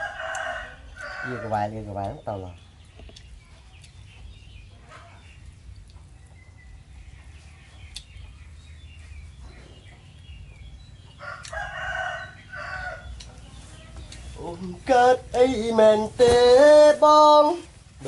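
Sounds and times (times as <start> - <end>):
rooster crowing: 0.0 - 1.7, 11.2 - 13.1
small birds chirping: 0.0 - 18.0.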